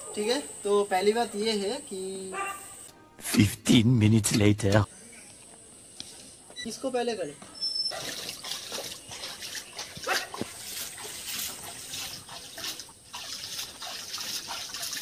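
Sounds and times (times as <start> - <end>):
water splashing by hand: 7.9 - 15.0.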